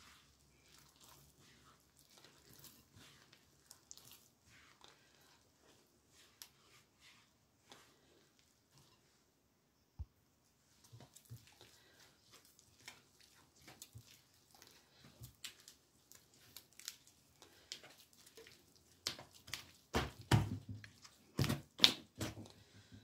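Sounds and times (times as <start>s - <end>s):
dough squelching and tearing: 0.0s - 9.2s, 10.6s - 23.0s
dough slaps: 19.0s - 22.5s.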